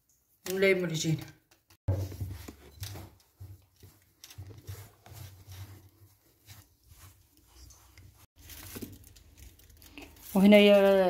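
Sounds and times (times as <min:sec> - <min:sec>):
dough squishing: 0:03.2 - 0:11.0.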